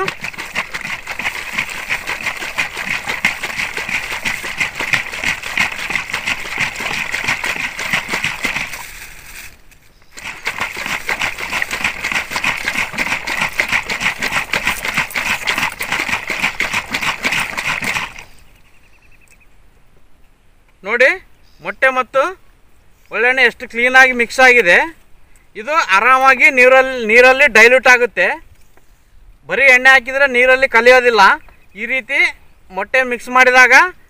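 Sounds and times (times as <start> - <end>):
liquid sloshing in plastic bottle: 0.0 - 9.6, 10.2 - 18.4.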